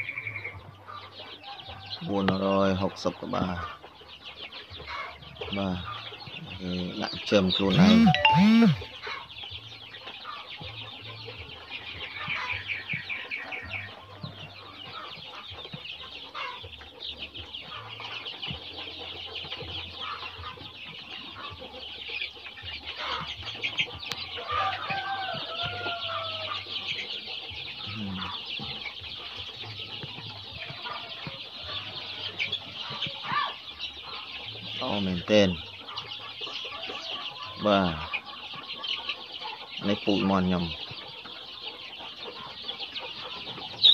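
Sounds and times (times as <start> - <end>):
chicks peeping: 0.0 - 43.9
wavering chick call: 7.7 - 9.2.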